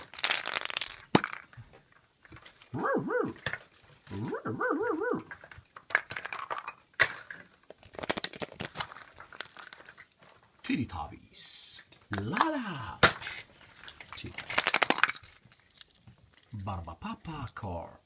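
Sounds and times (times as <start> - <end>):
plastic capsules snapping open: 0.0 - 1.6, 5.2 - 10.1, 14.0 - 16.0
dog-like barks: 2.7 - 3.4, 4.1 - 5.3.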